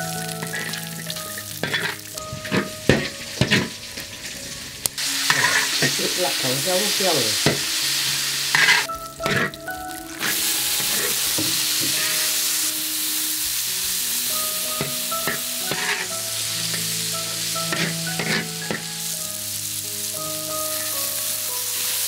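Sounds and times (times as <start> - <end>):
food sizzling in a wok: 0.0 - 22.0
spatula scraping and knocking wok: 0.4 - 4.4, 5.0 - 6.2, 7.4 - 19.1.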